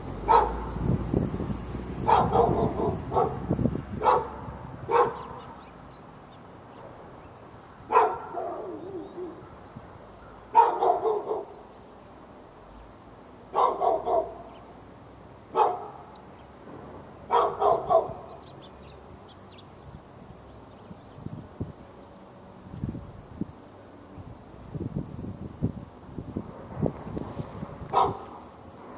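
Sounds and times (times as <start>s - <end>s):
wind rumble on microphone: 0.0s - 5.7s, 19.7s - 22.0s, 22.6s - 28.9s
dog barking: 0.2s - 0.8s, 2.0s - 5.4s, 7.9s - 9.4s, 10.5s - 11.6s, 13.5s - 14.5s, 15.5s - 16.1s, 17.3s - 18.4s, 27.9s - 28.4s.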